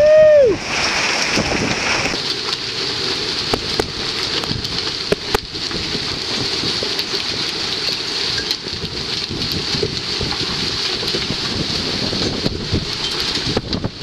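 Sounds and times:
hail and rain falling: 0.0 - 14.0
hailstones knocking on hard surfaces: 0.8 - 14.0.

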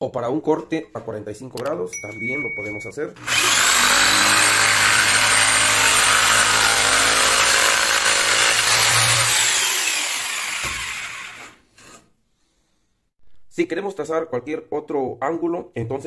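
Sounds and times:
jigsaw cutting wood: 3.2 - 12.0.

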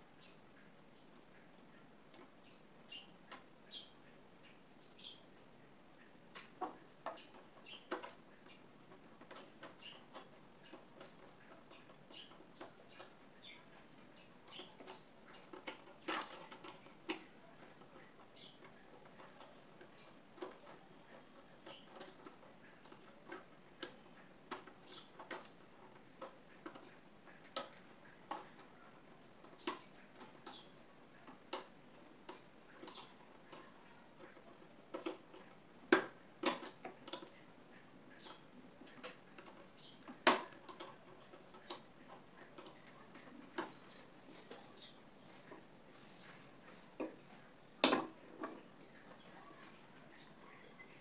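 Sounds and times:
sewing machine parts clicking: 14.4 - 37.4.

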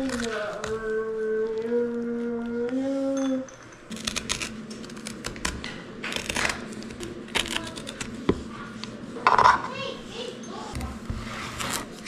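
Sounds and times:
metal spoon scraping squash: 3.9 - 9.8, 10.5 - 12.0.

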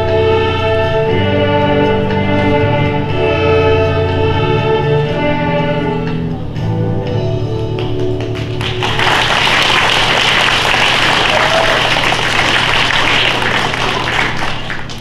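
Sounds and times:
music: 0.0 - 15.0
audience applauding: 8.1 - 15.0.

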